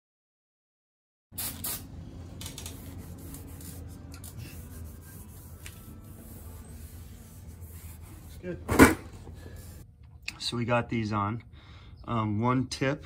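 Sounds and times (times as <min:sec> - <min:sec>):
cloth rag wiping metal: 0:02.8 - 0:08.6.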